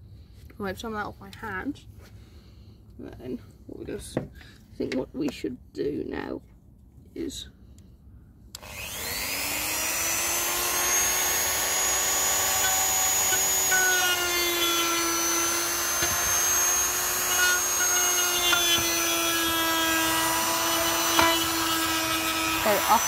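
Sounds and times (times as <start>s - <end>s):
rotary tool high-speed whine: 8.6s - 23.0s.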